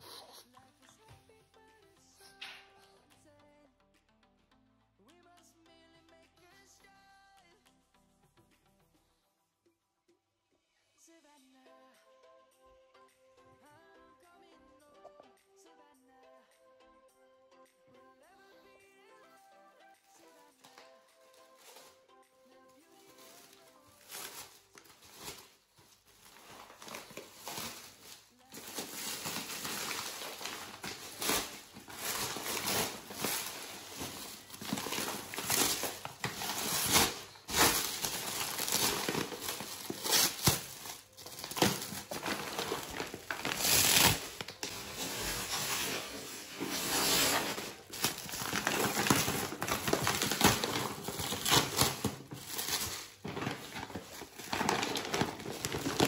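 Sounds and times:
plastic wrap crinkling: 0:20.2 - 0:22.0, 0:22.8 - 0:56.0.

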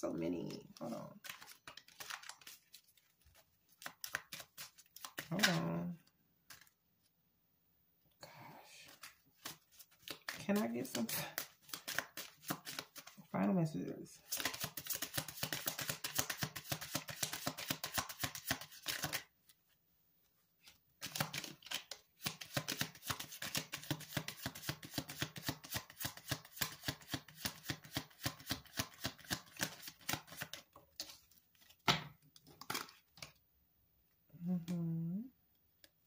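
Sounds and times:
cards being shuffled: 0:00.4 - 0:06.8, 0:08.9 - 0:13.2, 0:14.3 - 0:19.3, 0:20.6 - 0:33.4.

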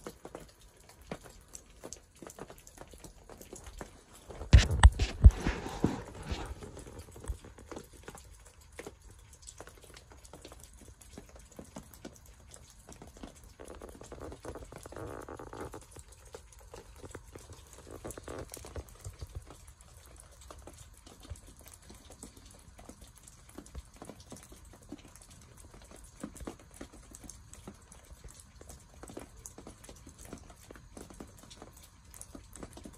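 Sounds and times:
snow pattering on tent canvas: 0:00.0 - 0:11.8, 0:12.4 - 0:27.0.

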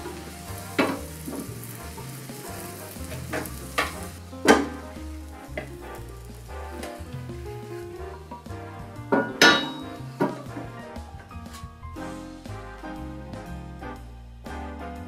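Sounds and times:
omelette sizzling in a pan: 0:00.0 - 0:10.5
pan knocking: 0:09.1 - 0:10.8.

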